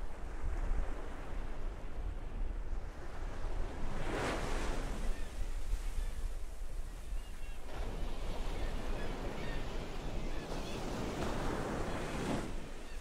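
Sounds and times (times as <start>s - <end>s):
waves washing in: 7.6s - 13.0s.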